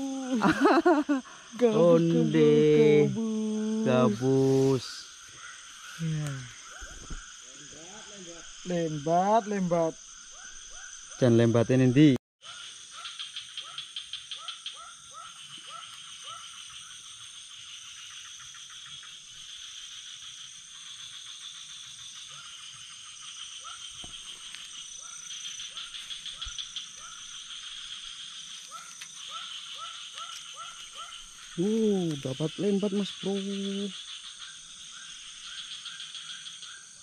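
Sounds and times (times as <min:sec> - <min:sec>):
frogs chirping: 0:00.0 - 0:37.0
high buzz of insects: 0:00.0 - 0:37.0.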